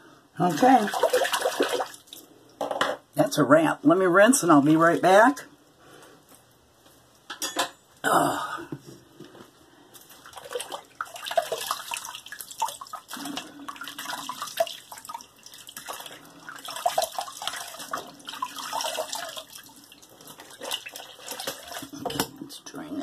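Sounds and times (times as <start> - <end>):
water splashing in a sink: 0.4 - 2.3, 10.2 - 23.0.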